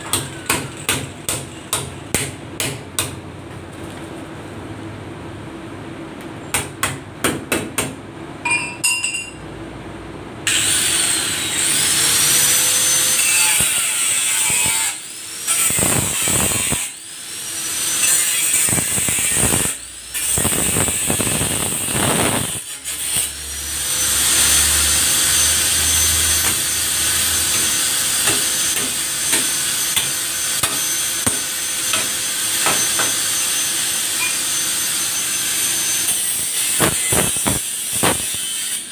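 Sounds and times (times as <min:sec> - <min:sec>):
angle grinder cutting sheet steel: 0:10.5 - 0:38.9
sharp metallic knocks: 0:27.5 - 0:33.2.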